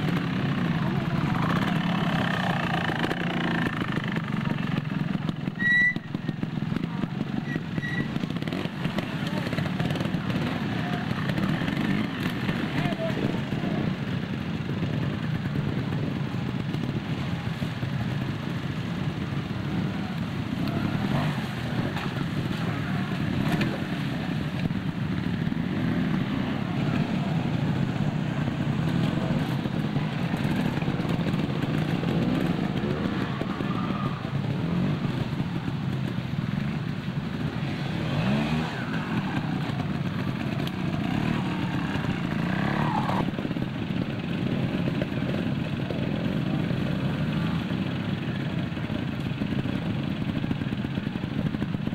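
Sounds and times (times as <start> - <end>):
motorcycle engines at low revs: 0.0 - 51.9.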